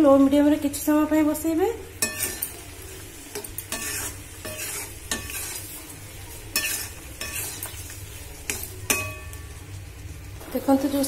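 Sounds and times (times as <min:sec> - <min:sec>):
syrup sizzling and bubbling: 0:00.3 - 0:11.0
spoon scraping a metal pan: 0:02.0 - 0:05.9, 0:06.5 - 0:09.4.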